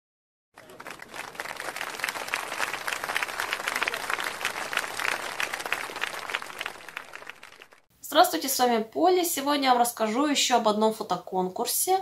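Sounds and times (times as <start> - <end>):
crowd applauding: 0.6 - 7.9.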